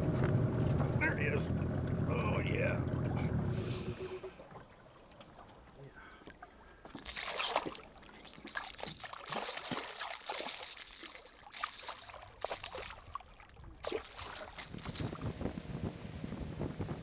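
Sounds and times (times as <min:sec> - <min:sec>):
fish splashing in water: 0:06.9 - 0:15.4.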